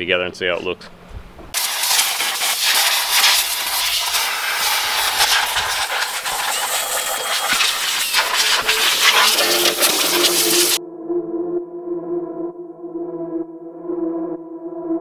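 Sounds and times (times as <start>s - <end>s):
paint spray gun hissing: 1.6s - 10.8s.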